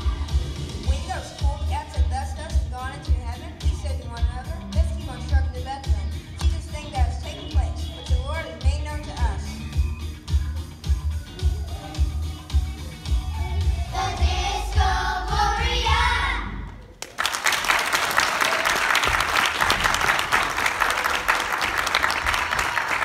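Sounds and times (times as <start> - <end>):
backing track with heavy bass beat: 0.0 - 16.7
voices singing: 11.3 - 16.7
audience applause: 17.0 - 23.0.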